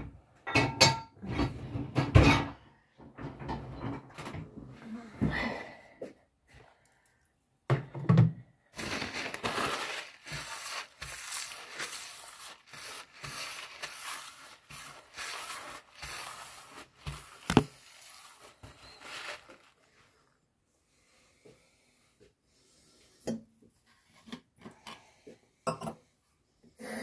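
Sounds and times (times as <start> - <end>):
plastic crinkling: 8.7 - 20.3.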